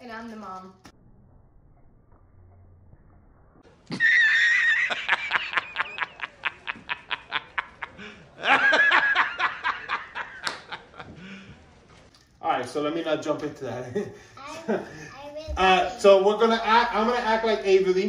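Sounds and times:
man laughing loudly: 3.9s - 11.1s.

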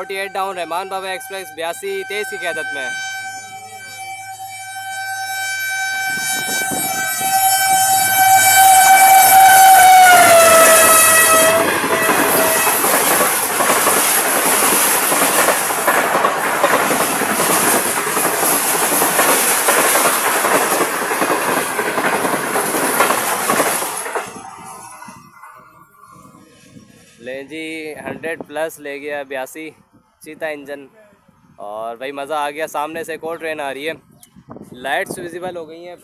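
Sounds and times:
locomotive horn: 0.0s - 14.9s
train coaches clickety-clack: 6.2s - 25.7s.

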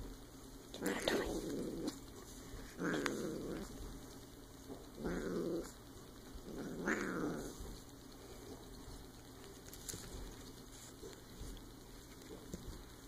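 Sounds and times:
kitten growling: 0.8s - 3.8s, 4.9s - 5.8s, 6.4s - 7.7s.

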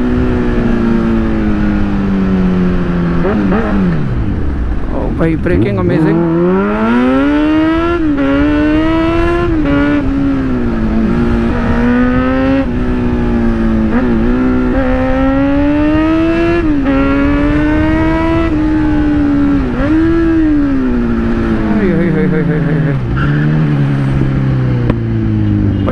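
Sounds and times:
motorcycle engine revving: 0.0s - 25.9s.

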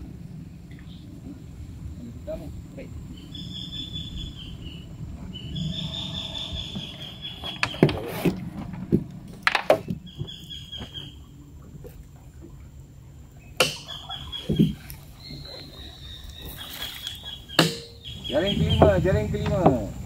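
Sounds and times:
insects buzzing: 0.0s - 20.0s
low steady rumble: 0.0s - 20.0s
sharp knocks and clatters: 7.4s - 11.0s.

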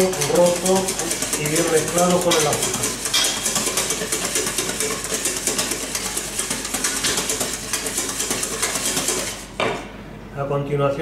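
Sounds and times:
whisk beating in metal bowl: 0.0s - 9.6s.

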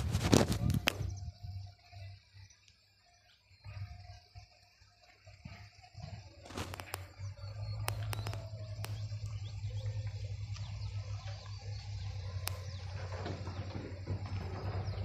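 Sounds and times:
steady low rumble: 0.0s - 1.8s, 6.2s - 13.6s
birds chirping: 0.0s - 15.0s
sharp clicks: 6.5s - 9.4s, 12.4s - 12.8s.

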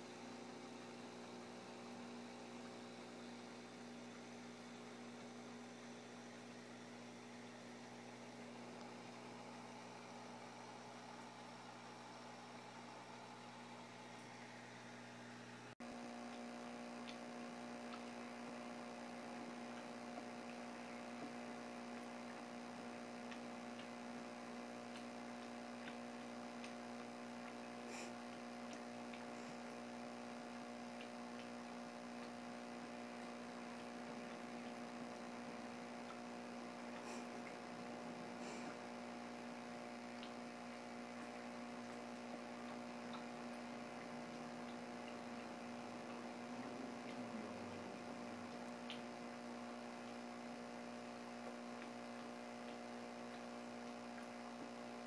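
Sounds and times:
electrical hum: 0.0s - 55.0s
faint ticks: 16.0s - 55.0s.

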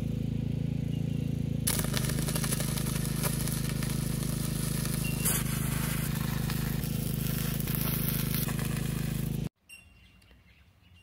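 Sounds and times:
steady hum: 1.7s - 9.5s
welding arc crackling and sizzling: 1.7s - 9.5s.

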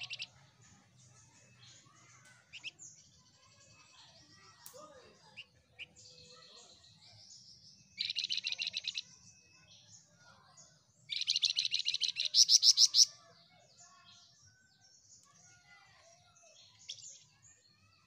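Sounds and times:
songbird chattering: 0.0s - 0.3s, 1.3s - 3.0s, 7.9s - 9.2s, 11.1s - 13.2s.

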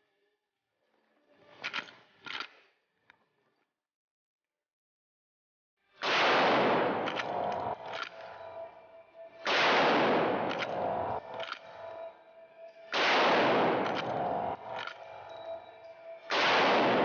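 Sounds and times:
rifle lever metallic clicks: 1.6s - 2.6s, 6.7s - 8.3s, 10.4s - 11.7s, 13.8s - 15.0s
rifle shots echoing indoors: 6.0s - 8.7s, 9.4s - 12.0s, 12.9s - 15.6s, 16.3s - 17.0s.

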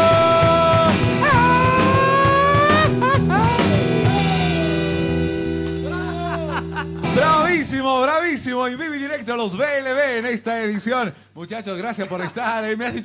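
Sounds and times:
man singing long notes: 0.0s - 4.8s
electric guitar: 0.0s - 7.8s
drums: 0.0s - 9.6s.

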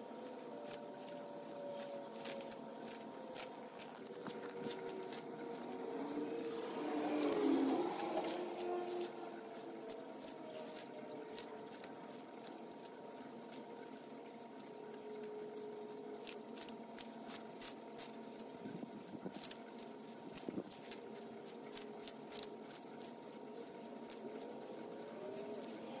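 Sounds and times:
faint hum: 0.0s - 26.0s
tortoise crunching lettuce: 0.0s - 26.0s.

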